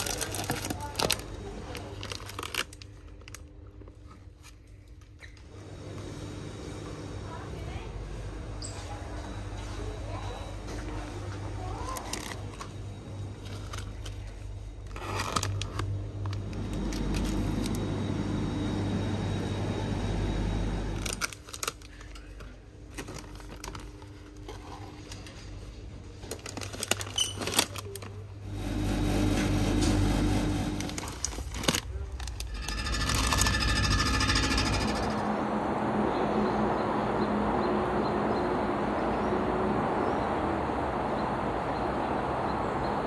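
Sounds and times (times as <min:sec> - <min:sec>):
bottles and packets being handled: 0:00.0 - 0:05.1, 0:13.4 - 0:17.8, 0:21.0 - 0:28.3
steady electrical hum: 0:00.0 - 0:43.0.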